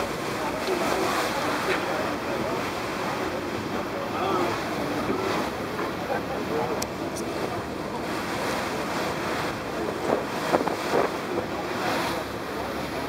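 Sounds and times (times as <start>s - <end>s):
choppy sea water rushing: 0.0s - 13.0s
wind buffeting microphone: 7.3s - 12.4s.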